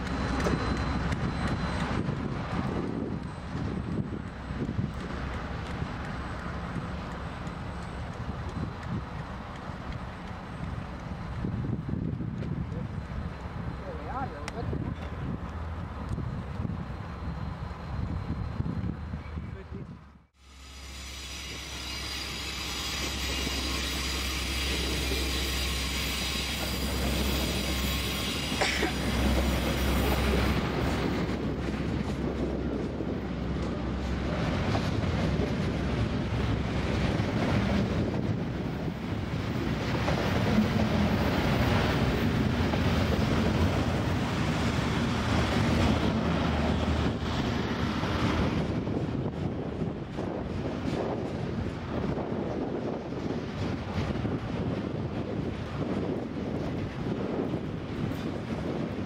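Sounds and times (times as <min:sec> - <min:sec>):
train wheels rolling on rail: 0:00.0 - 0:19.4, 0:20.3 - 0:59.0
wind buffeting microphone: 0:00.0 - 0:20.3, 0:22.2 - 0:59.0
locomotive engine rumble: 0:21.6 - 0:59.0.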